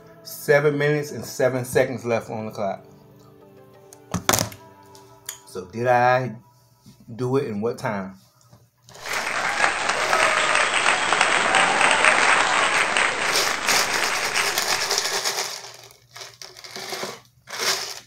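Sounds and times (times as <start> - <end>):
applause: 9.0 - 15.7.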